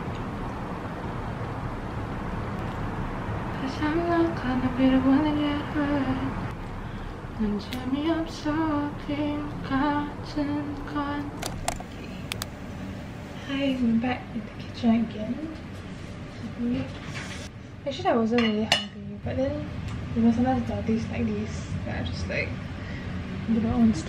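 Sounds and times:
steady background noise: 0:00.0 - 0:24.0
woman singing pop song: 0:03.6 - 0:06.5, 0:07.4 - 0:11.5.

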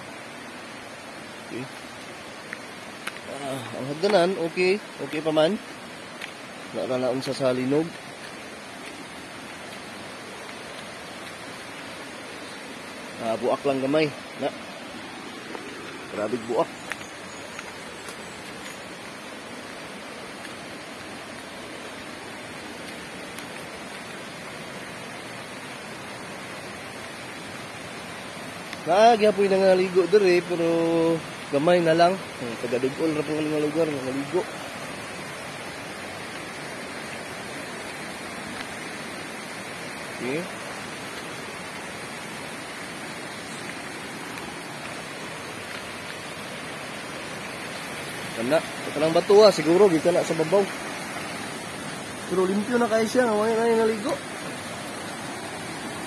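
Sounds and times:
flowing stream water: 0:00.0 - 0:56.0
faint ticks: 0:02.4 - 0:03.3, 0:16.8 - 0:18.8.

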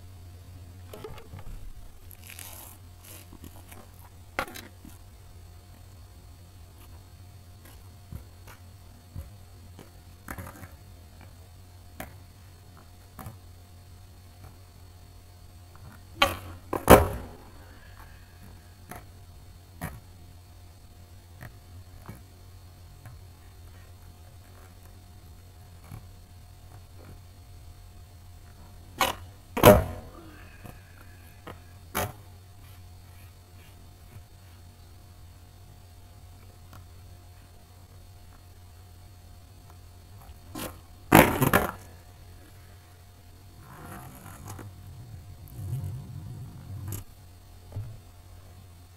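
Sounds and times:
skateboard landing clack and rattle: 0:00.8 - 0:01.8, 0:03.6 - 0:04.9, 0:07.6 - 0:11.4, 0:15.8 - 0:17.6, 0:28.4 - 0:30.8, 0:31.4 - 0:32.3, 0:40.2 - 0:41.9
skateboard taps and scuffs: 0:03.2 - 0:05.0, 0:07.6 - 0:11.4, 0:12.0 - 0:13.4, 0:15.7 - 0:17.6, 0:18.4 - 0:19.2, 0:21.3 - 0:27.3, 0:28.4 - 0:30.8, 0:31.4 - 0:34.7, 0:39.6 - 0:41.9
skateboard tail cracking: 0:15.8 - 0:19.1, 0:28.4 - 0:32.3, 0:40.2 - 0:42.6, 0:43.6 - 0:48.0
skateboard slamming onto pavement: 0:16.2 - 0:17.5, 0:29.0 - 0:30.2, 0:40.6 - 0:41.9.

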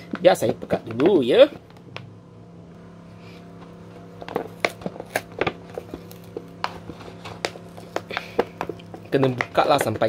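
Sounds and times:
paper lid peeling and crackling: 0:04.1 - 0:10.0.

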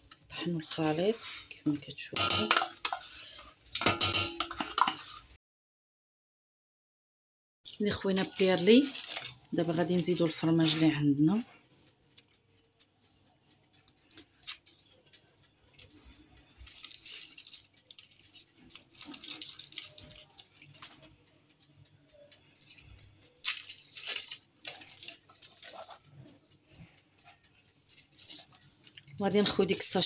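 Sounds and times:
foil wrappers crinkling and tearing: 0:08.0 - 0:10.8, 0:13.7 - 0:21.6, 0:22.5 - 0:29.7.

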